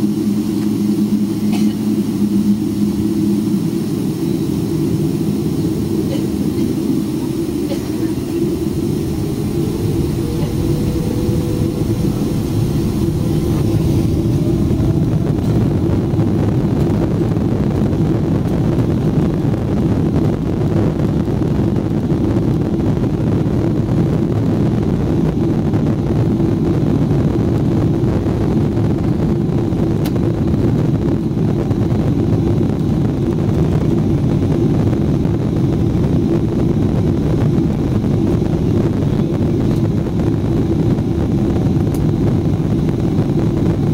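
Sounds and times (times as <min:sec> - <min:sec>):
jet engine whine: 0:00.0 - 0:43.9
jet engines rumbling: 0:00.0 - 0:43.9.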